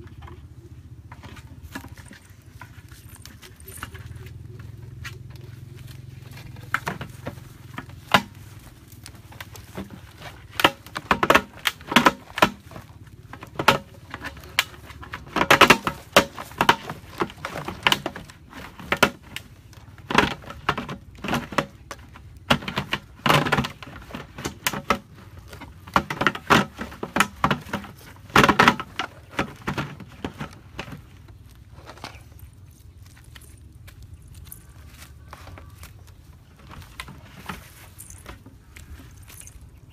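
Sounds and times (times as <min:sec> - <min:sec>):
hard plastic parts clicking: 0:01.1 - 0:39.9.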